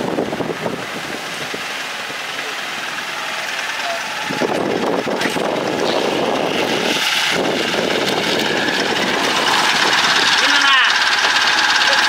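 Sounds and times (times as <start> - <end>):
small truck driving past: 1.1 - 12.0.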